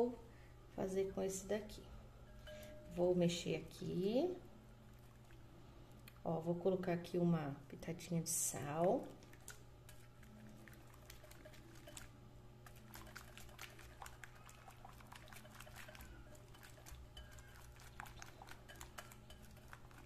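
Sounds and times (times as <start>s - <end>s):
steady low hum: 0.0s - 20.0s
whisk clicking against glass bowl: 10.8s - 12.1s, 12.7s - 20.0s.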